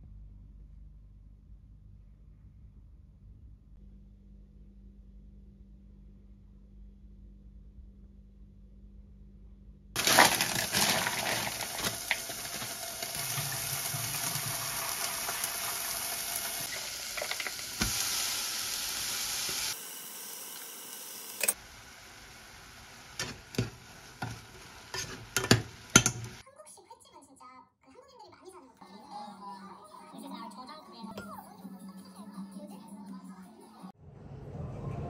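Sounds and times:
tap water running into bowl: 10.0 - 18.0
faint sizzle: 10.0 - 26.4.

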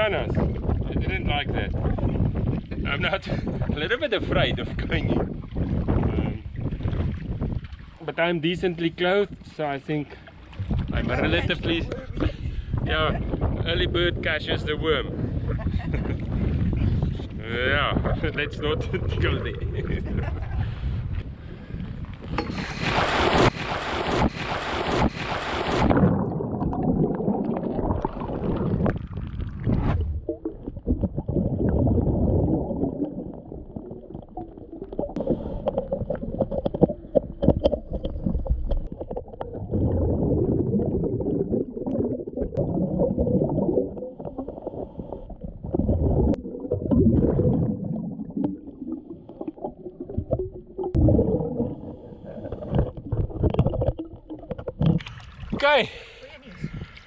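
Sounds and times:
gurgling exhaled bubbles: 0.0 - 7.6, 10.4 - 55.6
water splash: 22.3 - 55.8
diver breathing through regulator: 35.2 - 36.0, 51.7 - 53.0.

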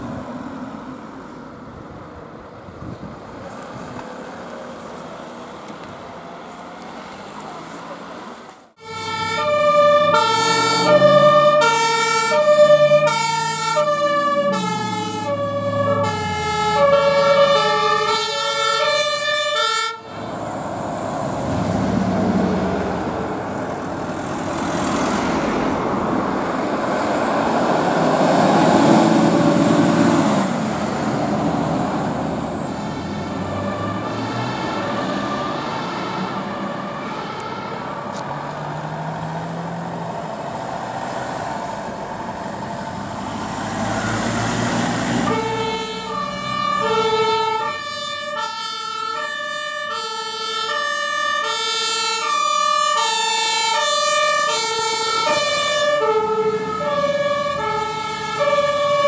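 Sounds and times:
fire engines pulling away: 0.0 - 59.0
two-tone emergency siren: 8.8 - 20.4, 24.8 - 40.1, 41.8 - 59.0.

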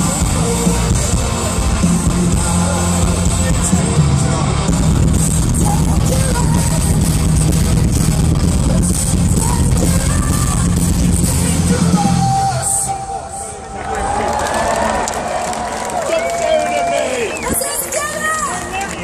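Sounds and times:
person singing: 0.0 - 13.5
live metal band over loudspeakers: 0.0 - 19.0.

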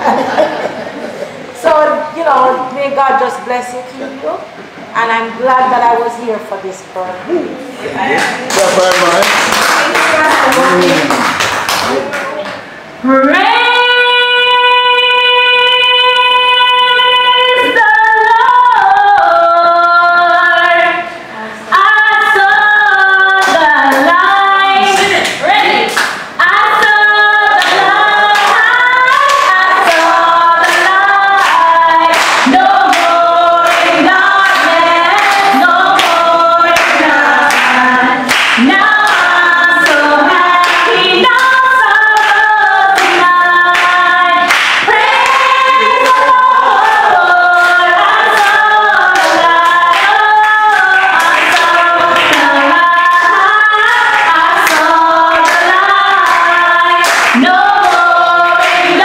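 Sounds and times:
hand clapping: 8.2 - 12.6, 27.6 - 41.6, 43.0 - 46.3, 48.4 - 53.4, 54.0 - 59.0
woman singing gospel song: 13.0 - 59.0.

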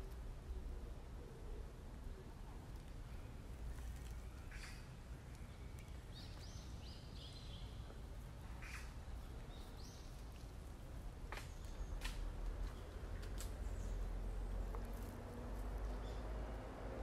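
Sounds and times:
leaves rustling: 2.6 - 16.2.

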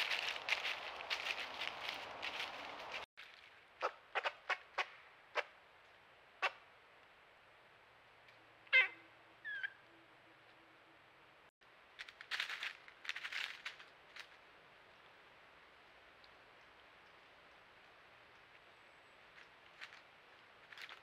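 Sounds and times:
rustling in dry leaves: 0.0 - 3.9, 11.6 - 21.0
wavering animal call: 8.7 - 10.2.

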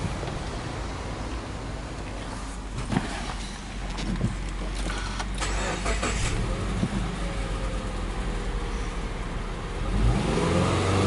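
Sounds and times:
car engine idling: 0.0 - 10.1
car starter cranking: 3.4 - 6.8.

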